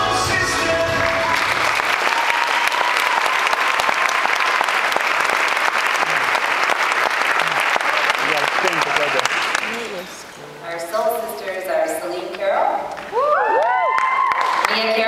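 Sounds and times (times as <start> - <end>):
audience clapping: 0.9 - 10.3, 13.0 - 15.0.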